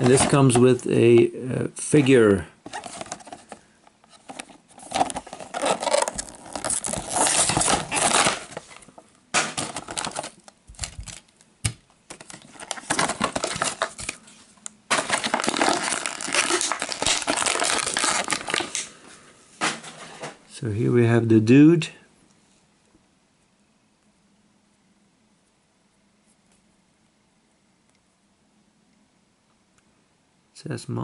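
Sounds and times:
plastic blister packaging crinkling: 0.0s - 19.0s.

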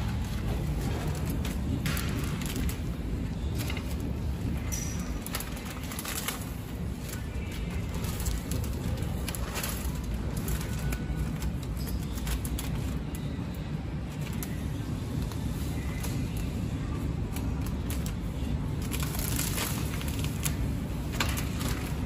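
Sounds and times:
plastic film rustling and crinkling: 0.0s - 22.0s.

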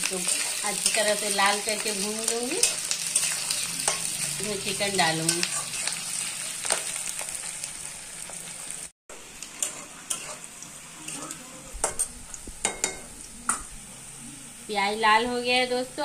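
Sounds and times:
onions sizzling in hot oil: 0.0s - 16.0s
metal spatula scraping pan: 2.6s - 6.9s, 9.4s - 10.5s.

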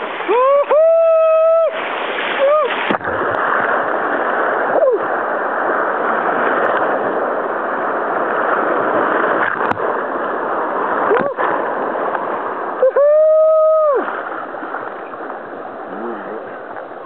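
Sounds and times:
whitewater rapids rushing: 0.0s - 17.0s
person crying out: 12.8s - 14.0s.

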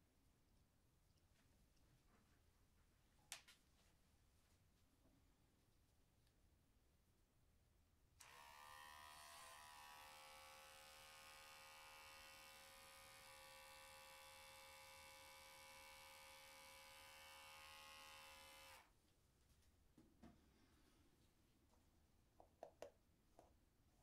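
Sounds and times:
electric hair clipper buzzing: 8.2s - 18.9s.

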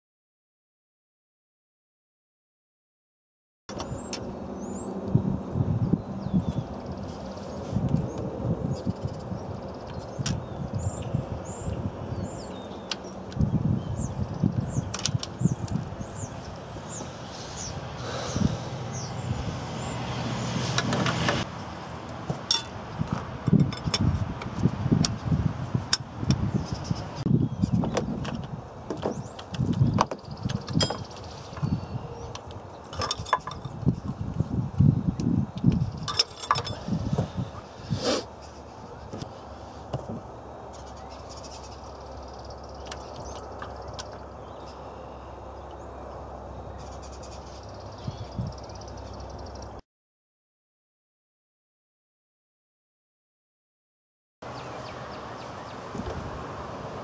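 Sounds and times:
outdoor background noise: 3.7s - 49.8s, 54.4s - 57.0s
bird trilling: 13.8s - 20.6s
light clicks of engine parts: 14.9s - 17.1s, 32.3s - 33.8s, 42.8s - 44.3s
wrench clinking on engine metal: 22.5s - 22.8s, 23.5s - 24.1s, 30.4s - 31.3s, 32.9s - 33.8s, 36.0s - 36.8s.

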